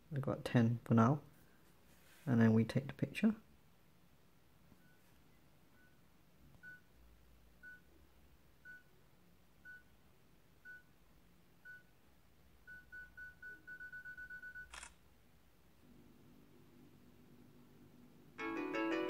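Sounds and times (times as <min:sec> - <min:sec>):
faint camera timer beeps: 0:06.6 - 0:06.9, 0:07.6 - 0:07.9, 0:08.6 - 0:08.9, 0:09.6 - 0:09.9, 0:10.6 - 0:10.9, 0:12.7 - 0:15.0
camera shutter sound: 0:14.6 - 0:15.0.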